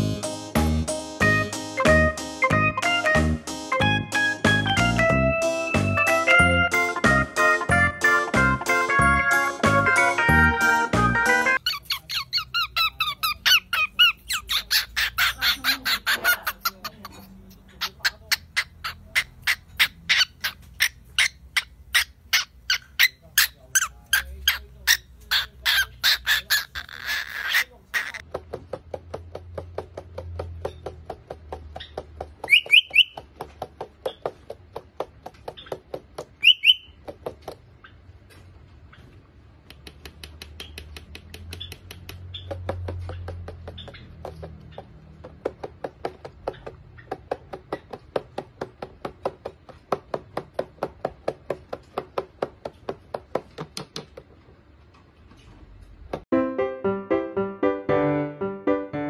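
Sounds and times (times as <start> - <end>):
cockatiel chirping: 11.6 - 28.2, 31.8 - 33.2, 36.4 - 37.0.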